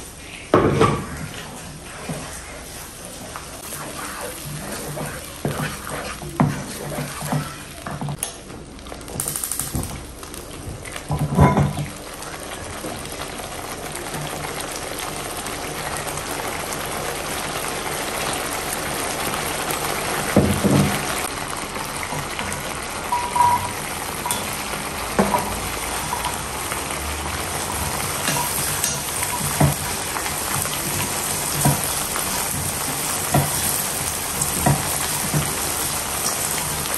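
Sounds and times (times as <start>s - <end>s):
paste sizzling in a pan: 0.0s - 8.2s, 12.9s - 36.9s
wooden spatula scraping pan: 0.8s - 8.2s.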